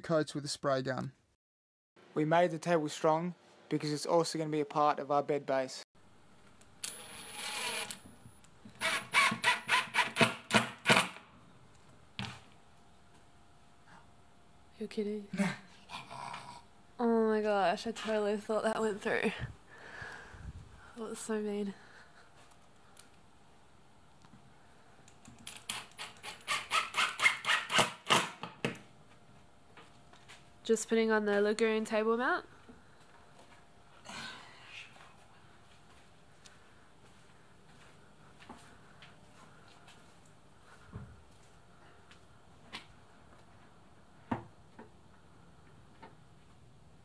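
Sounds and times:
impact driver motor whir: 6.9 - 8.0.

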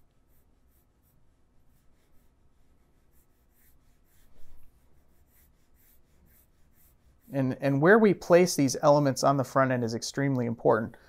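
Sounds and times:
pen scratching sketch strokes: 0.0 - 7.7.

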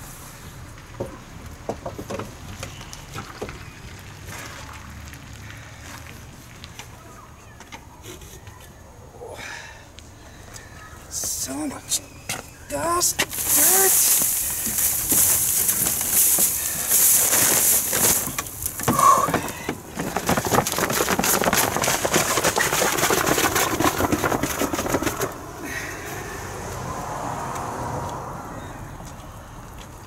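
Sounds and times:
dry grass rustling and crackling: 12.7 - 25.4.

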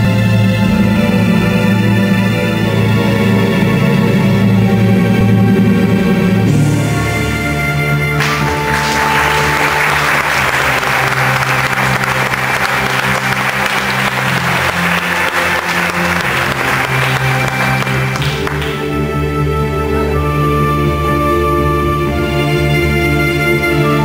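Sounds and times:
slow music with sustained tones: 0.0 - 24.0
audience applauding: 8.1 - 19.1.

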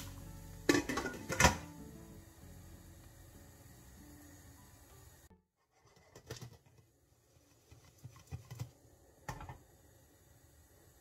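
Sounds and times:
popcorn popping in a pot: 0.0 - 1.9, 5.8 - 9.9.

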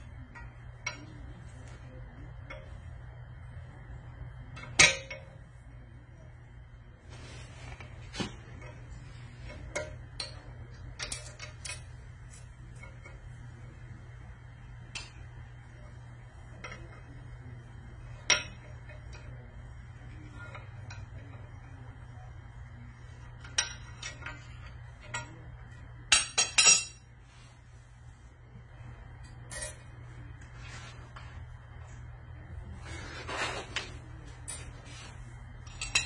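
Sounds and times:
steady low hum: 0.0 - 36.0
metal tools clinking on metal: 26.1 - 27.0, 29.5 - 29.9, 35.6 - 36.0.

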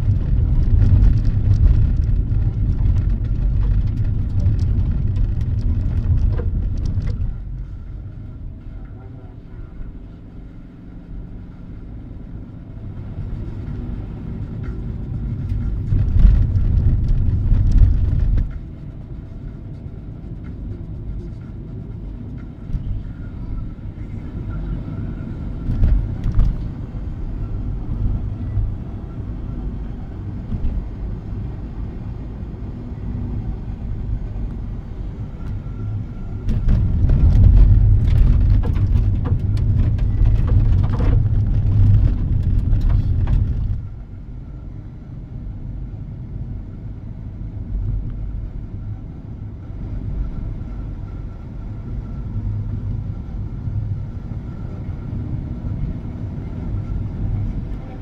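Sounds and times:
gravel clicks and rattles: 0.0 - 7.7, 14.6 - 18.7, 36.4 - 44.0
road noise inside car: 0.0 - 58.0.

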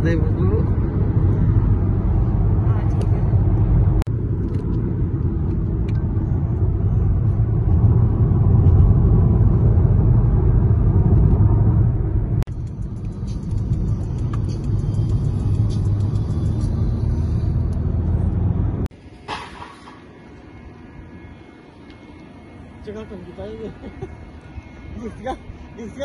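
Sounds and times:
car interior road rumble: 0.0 - 19.0.

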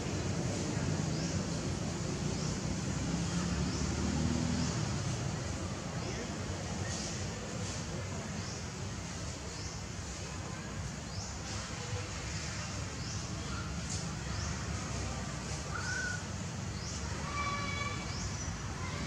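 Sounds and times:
bird calls: 15.5 - 19.0.

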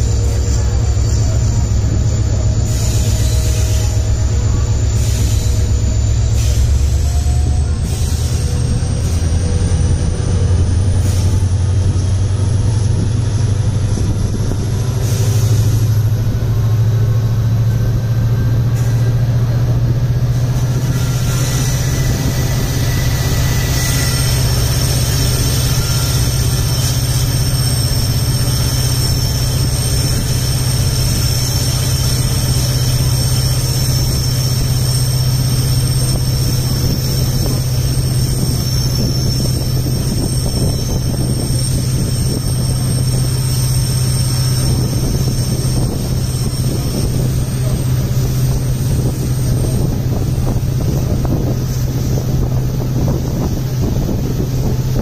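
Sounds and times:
locomotive engine roaring: 0.0 - 55.0
train wheels on rails: 0.0 - 55.0
thin high whine: 20.6 - 55.0.

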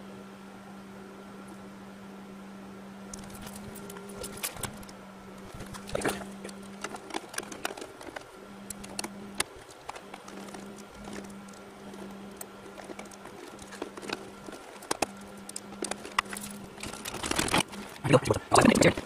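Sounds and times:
steady low hum: 0.0 - 19.0
small clicks of wires and connectors: 3.1 - 18.0.

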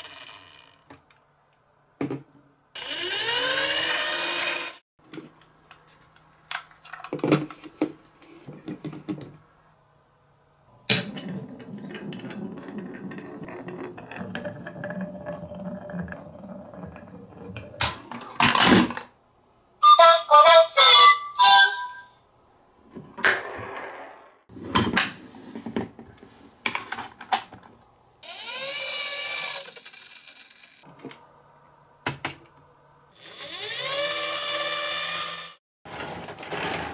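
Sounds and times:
whirring: 2.8 - 4.8, 28.2 - 30.8, 33.2 - 35.6
marble rolling on wooden slope: 11.0 - 18.4, 23.2 - 24.4, 28.2 - 30.9.

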